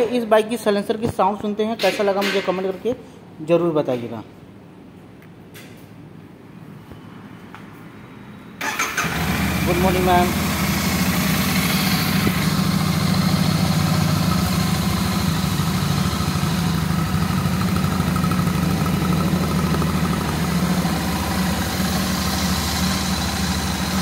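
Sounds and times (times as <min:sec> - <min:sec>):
motorcycle engine idling: 0:09.0 - 0:24.0.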